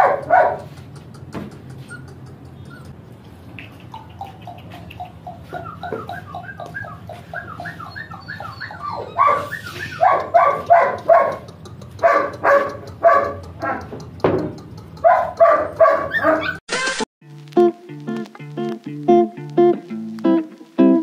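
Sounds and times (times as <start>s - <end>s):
puppy barking: 0.0s - 0.8s, 4.2s - 13.9s, 15.0s - 16.6s.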